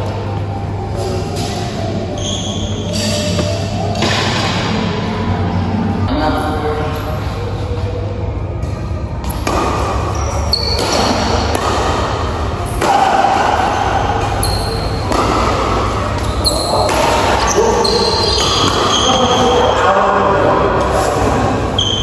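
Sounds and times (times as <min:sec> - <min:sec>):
shoes squeaking on court: 0:01.4 - 0:04.2
rackets striking shuttlecock: 0:09.2 - 0:19.1
players' voices: 0:10.0 - 0:22.0.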